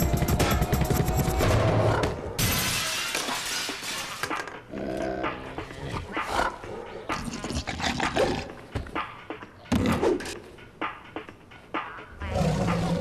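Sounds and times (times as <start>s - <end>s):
something shattering: 2.4s - 4.4s
cartoon bear growling: 4.7s - 6.6s.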